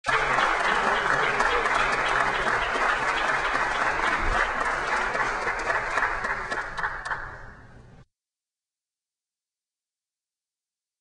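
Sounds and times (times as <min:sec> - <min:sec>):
crowd clapping: 0:00.0 - 0:07.6.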